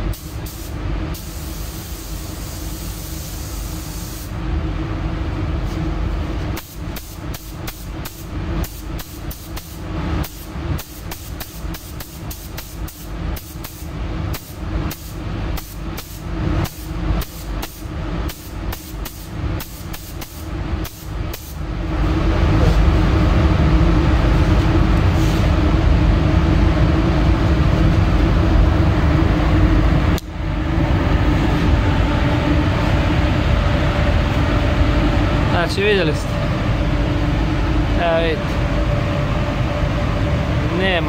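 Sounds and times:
paint spray gun hissing: 0:00.1 - 0:04.3, 0:06.6 - 0:21.6.

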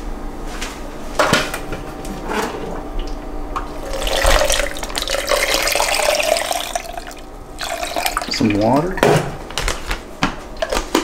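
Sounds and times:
water pouring into plastic container: 0:03.8 - 0:08.6.

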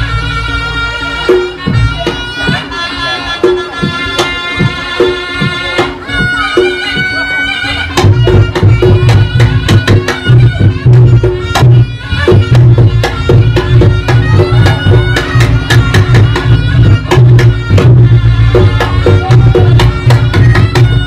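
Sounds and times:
hand drums: 0:00.0 - 0:21.0
loud fast low beat: 0:00.0 - 0:21.0
shawm melody: 0:00.0 - 0:21.0.

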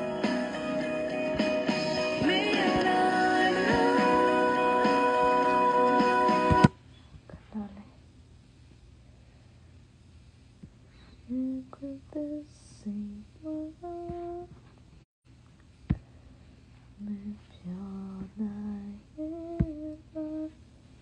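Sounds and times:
woman humming a slow tune: 0:11.3 - 0:14.6, 0:17.0 - 0:20.6.

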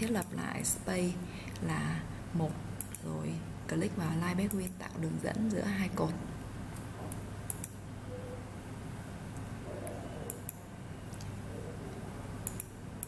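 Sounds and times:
steady low hum: 0:00.0 - 0:13.0
computer mouse clicking: 0:02.8 - 0:03.1, 0:07.5 - 0:07.8, 0:09.4 - 0:11.4, 0:12.4 - 0:12.8.

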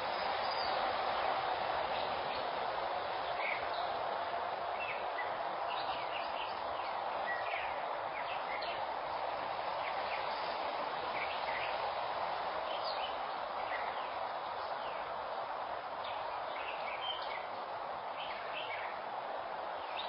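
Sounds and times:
outdoor background hiss: 0:00.0 - 0:20.0.

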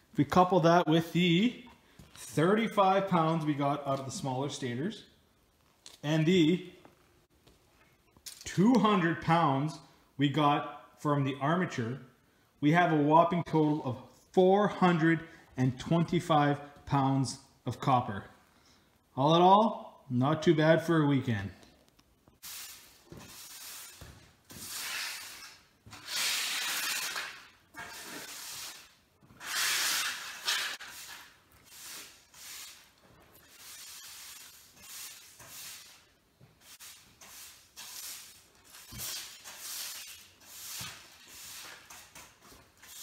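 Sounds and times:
broom sweeping concrete floor: 0:22.4 - 0:43.0.

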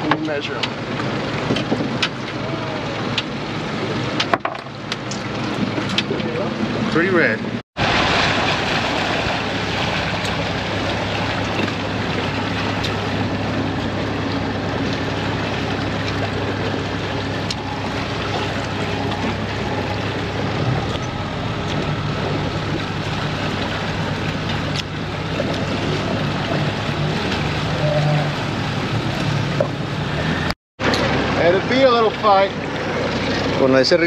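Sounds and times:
boat motor humming: 0:00.0 - 0:34.0
water noise: 0:00.0 - 0:34.0
wind: 0:00.0 - 0:34.0.

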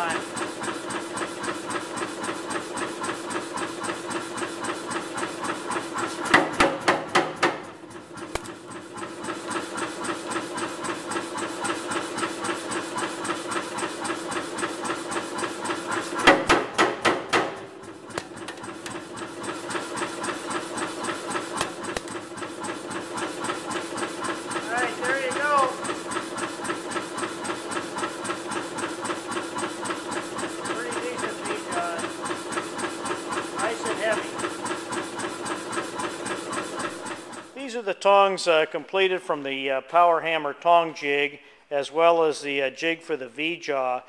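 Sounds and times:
hammer machinery running: 0:00.0 - 0:37.9
power hammer striking steel: 0:06.3 - 0:08.6, 0:16.2 - 0:19.0.

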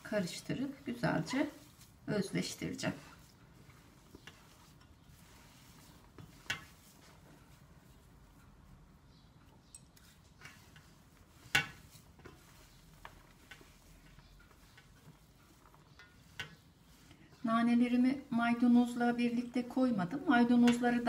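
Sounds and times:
hands squishing food mixture: 0:00.0 - 0:18.6.

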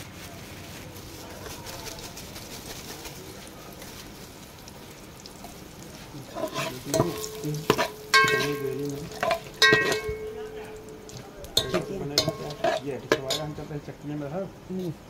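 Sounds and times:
spices sizzling in hot oil: 0:00.9 - 0:15.0
ladle knocking against pot: 0:06.9 - 0:13.6.

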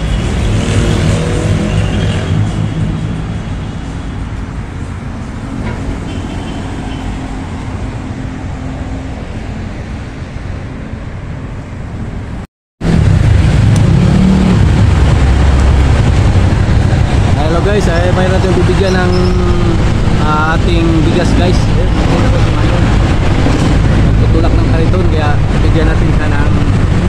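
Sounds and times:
road traffic: 0:00.0 - 0:27.0
heavy low rumble: 0:12.8 - 0:27.0.

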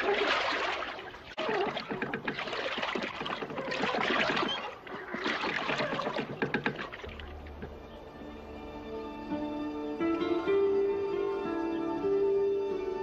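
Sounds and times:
water pouring and splashing: 0:00.0 - 0:07.9
wooden water wheel knocking: 0:00.0 - 0:08.2.

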